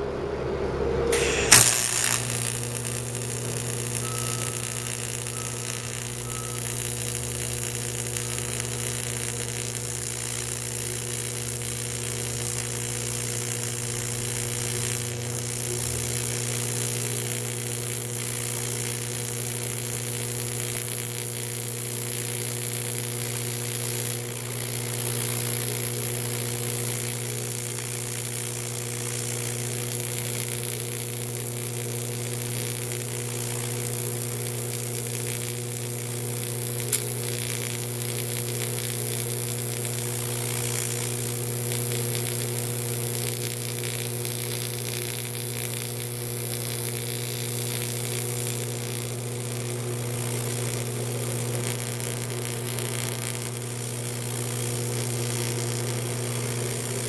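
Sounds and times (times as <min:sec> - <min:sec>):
welding arc buzz and hiss: 0:01.0 - 0:57.0
sharp click: 0:01.1 - 0:02.6.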